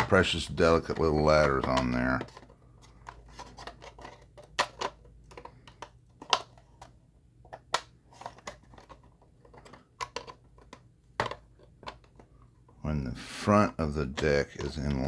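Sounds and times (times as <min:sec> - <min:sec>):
plastic parts clicking together: 0:00.9 - 0:12.3.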